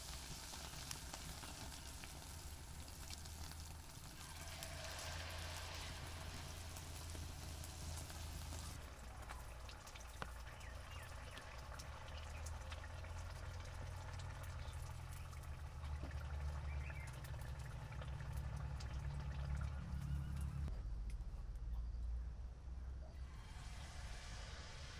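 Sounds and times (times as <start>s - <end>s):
batter sizzling in hot oil: 0.0s - 18.8s
oil crackling: 0.0s - 20.6s.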